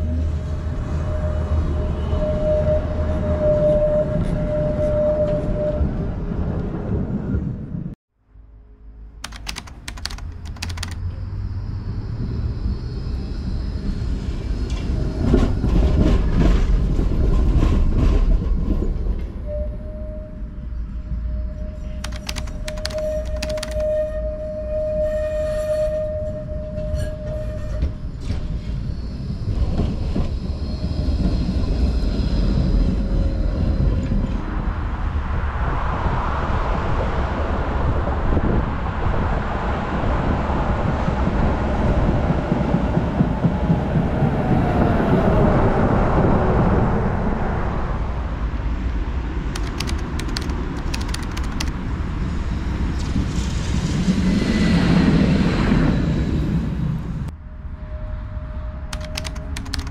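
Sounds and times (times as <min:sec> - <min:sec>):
sharp clicks: 0:09.2 - 0:11.0, 0:22.0 - 0:23.9, 0:49.6 - 0:51.8, 0:59.0 - 0:59.9
tram wheels rumbling on rails: 0:40.4 - 0:46.8.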